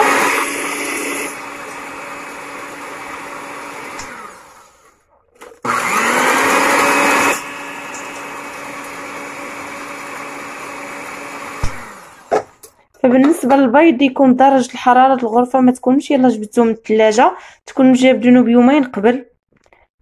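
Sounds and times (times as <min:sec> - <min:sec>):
electric hand mixer whining: 0:00.0 - 0:12.8.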